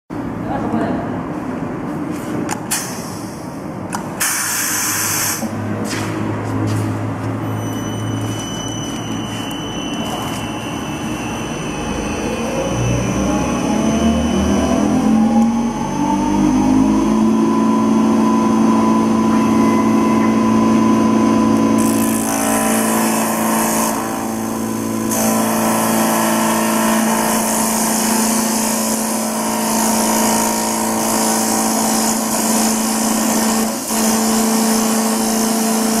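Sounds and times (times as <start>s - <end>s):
lathe motor whine: 7.6s - 36.0s.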